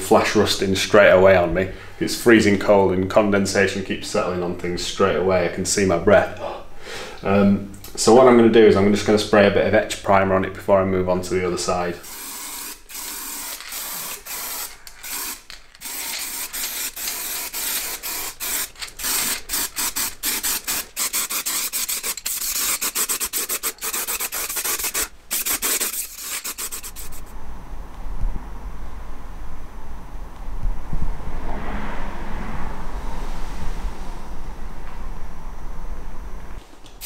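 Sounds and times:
aerosol can spraying: 12.0s - 27.3s.

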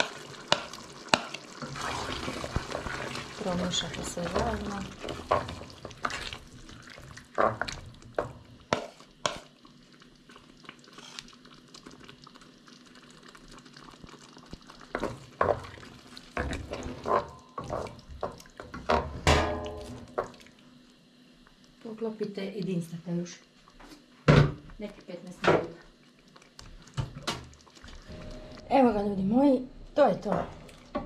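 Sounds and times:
wooden spoon stirring in pot: 0.0s - 19.2s, 24.7s - 31.0s
spoon scraping and knocking pot: 7.4s - 9.5s.

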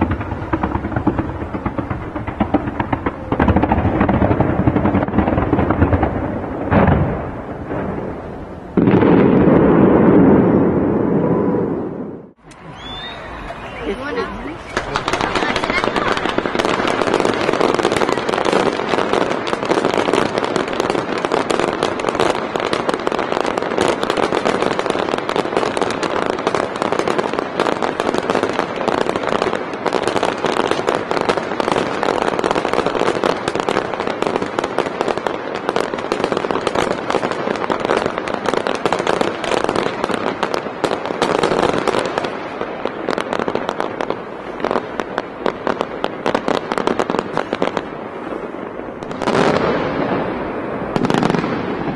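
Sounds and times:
fireworks bursting and crackling: 0.0s - 51.9s.

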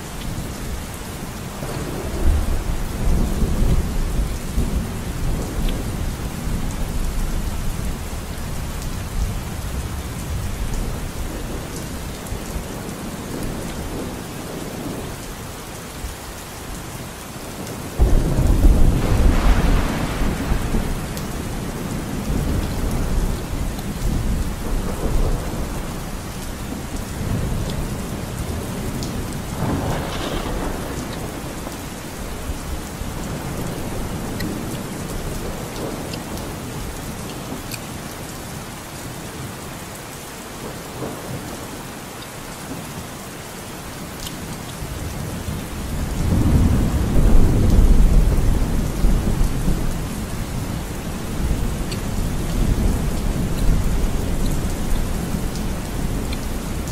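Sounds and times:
steady rain: 0.0s - 56.9s
thunder rumbling: 17.6s - 37.2s, 44.8s - 56.9s.

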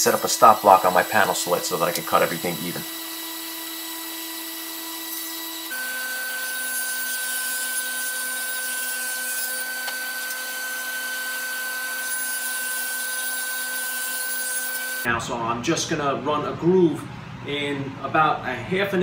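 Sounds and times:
table saw cutting plywood: 0.0s - 15.1s.

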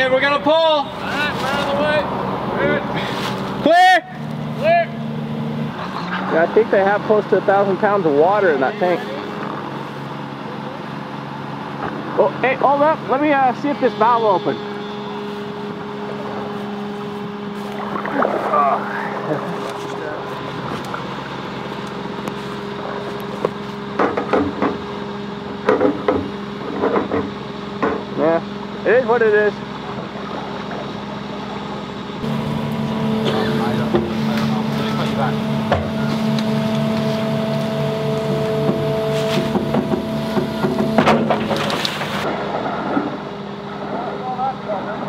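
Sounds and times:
engine idling: 0.0s - 45.0s
water rushing and splashing: 17.4s - 21.8s.

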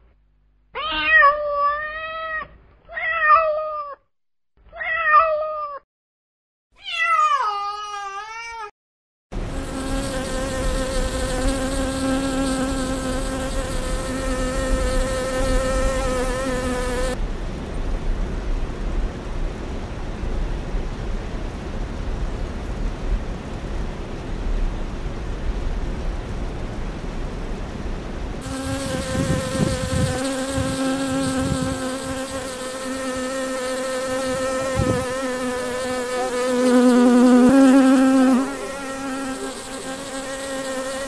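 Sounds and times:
cat meowing: 0.7s - 4.0s, 4.7s - 5.8s, 6.8s - 8.7s
steady background hiss: 9.4s - 41.0s
honeybee buzzing in flight: 9.5s - 17.2s, 28.4s - 41.0s.

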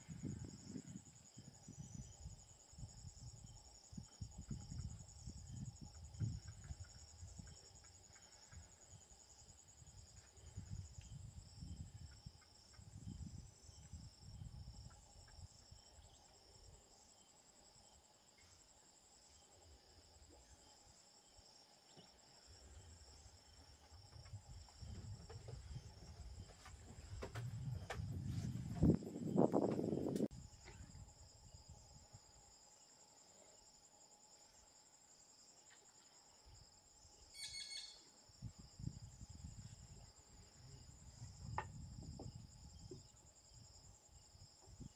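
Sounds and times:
insects trilling: 0.0s - 44.9s.

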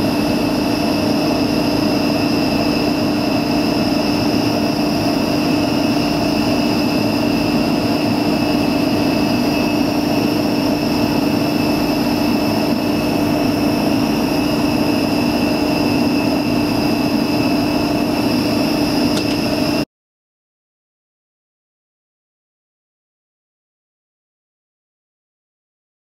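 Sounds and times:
electric drill motor whine: 0.0s - 19.8s.

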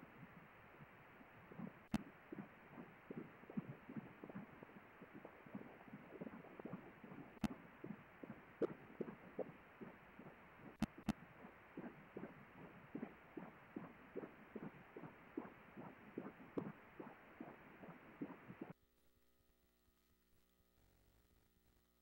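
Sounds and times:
ultrasound doppler pulsing: 1.5s - 18.7s.

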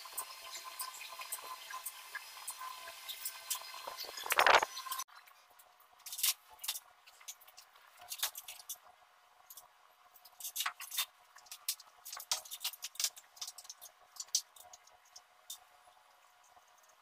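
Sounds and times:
light clicks taps and scrapes: 3.1s - 8.9s, 9.5s - 17.0s.

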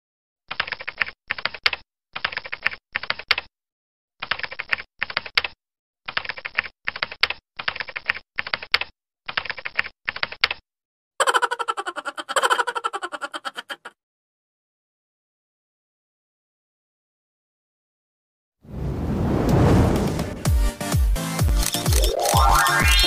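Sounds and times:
keyboard typing clicks: 0.5s - 3.5s, 4.2s - 10.6s, 21.6s - 23.0s.

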